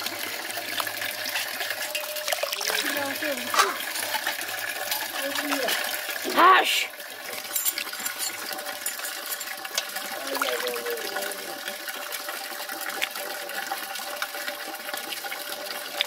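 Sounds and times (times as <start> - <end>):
water sloshing in steel bowl: 0.6 - 6.3, 7.0 - 11.3.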